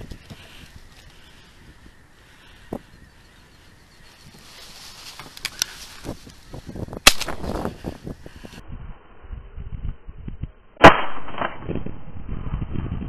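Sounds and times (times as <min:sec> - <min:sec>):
sharp gunshot crack: 0:07.0 - 0:07.4, 0:10.8 - 0:11.8.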